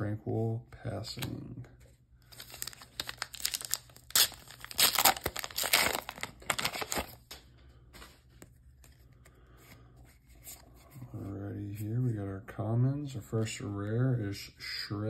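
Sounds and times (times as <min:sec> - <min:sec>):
foil wrapper tearing and crinkling: 0:02.3 - 0:07.4
cards rustling and clicking: 0:02.3 - 0:11.3.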